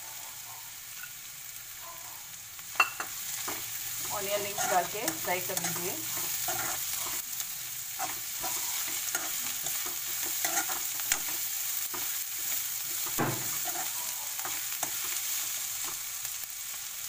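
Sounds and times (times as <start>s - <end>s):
vegetables sizzling in oil: 0.0s - 17.0s
steel spoon scraping pan: 2.8s - 7.2s, 8.0s - 15.2s.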